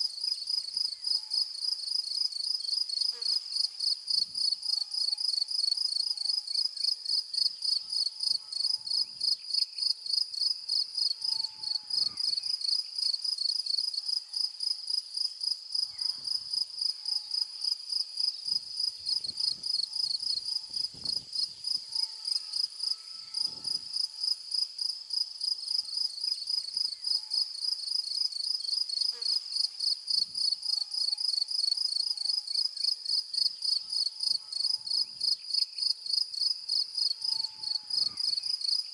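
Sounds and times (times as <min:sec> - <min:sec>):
insects chirping: 0:15.2 - 0:38.9.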